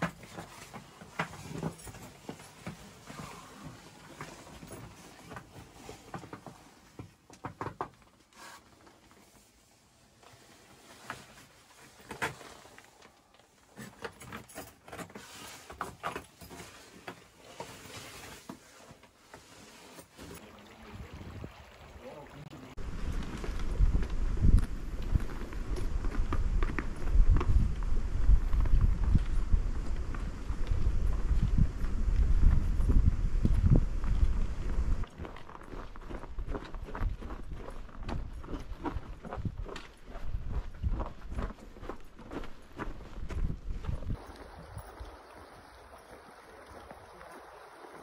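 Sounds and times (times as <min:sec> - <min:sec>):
clicks and scrapes in ice cave: 0:00.0 - 0:20.4.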